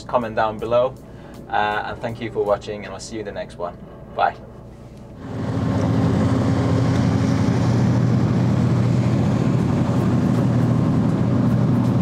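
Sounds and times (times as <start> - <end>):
boat engines droning: 0.0 - 12.0
hull and wake rushing hiss: 5.1 - 12.0.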